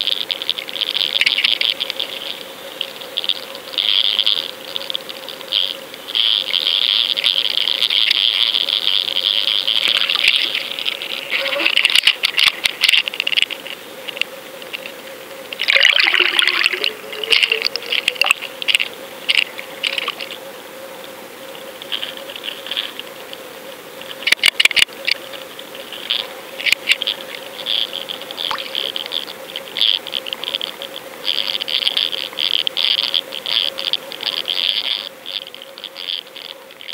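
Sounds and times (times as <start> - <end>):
faint steady hum: 0.0 - 36.9
underwater water rushing: 0.0 - 36.9
sharp clicks: 24.0 - 35.5.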